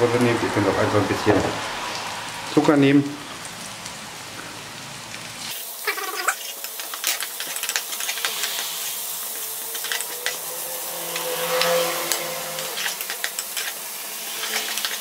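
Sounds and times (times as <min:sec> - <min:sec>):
onions sizzling in a frying pan: 0:00.0 - 0:15.0
wooden spatula scraping a pan: 0:09.3 - 0:15.0.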